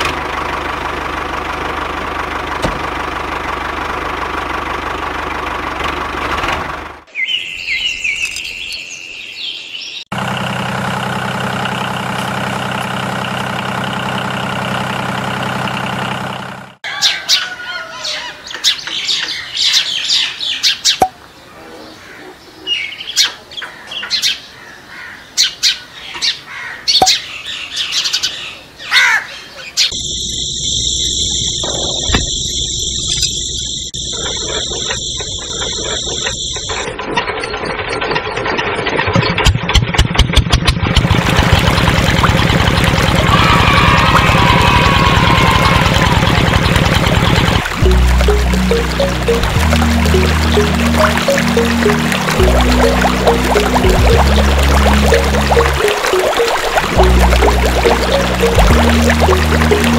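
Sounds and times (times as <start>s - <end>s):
birds chirping: 7.1s - 10.1s
steady machine drone: 41.0s - 55.8s.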